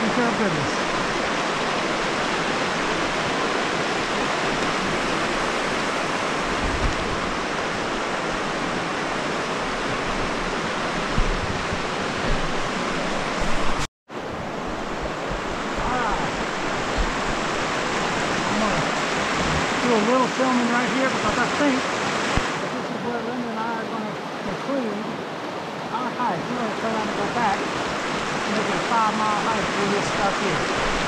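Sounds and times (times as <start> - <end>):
river water rushing: 0.0 - 31.0
wind buffeting microphone: 0.5 - 20.6.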